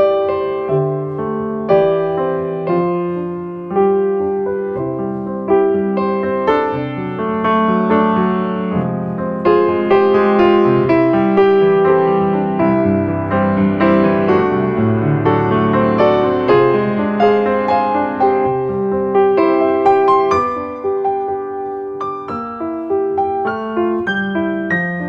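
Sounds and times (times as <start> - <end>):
gentle piano piece: 0.0 - 25.0.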